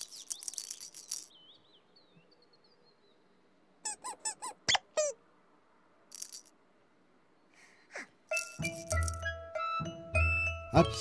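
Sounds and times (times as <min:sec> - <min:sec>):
faint birdsong: 0:00.0 - 0:11.0
cartoon-like squeaks: 0:03.8 - 0:05.2.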